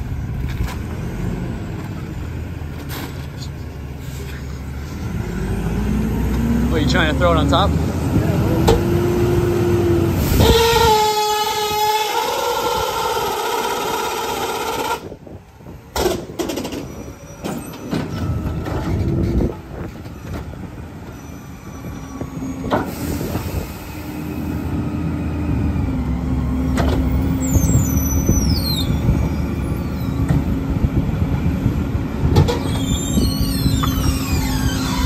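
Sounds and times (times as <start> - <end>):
diesel engine rumble: 0.0 - 35.0
hydraulics whining: 0.0 - 35.0
high squeals: 27.1 - 30.3, 32.5 - 35.0.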